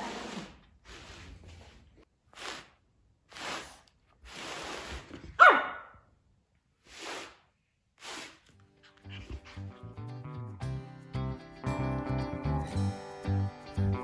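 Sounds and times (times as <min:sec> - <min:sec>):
puppy yipping: 0:05.4 - 0:05.9.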